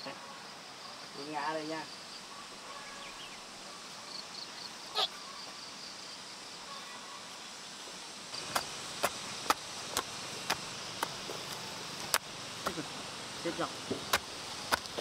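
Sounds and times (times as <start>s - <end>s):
insects chirring: 0.0s - 15.0s
hand tool chopping soil: 13.9s - 15.0s.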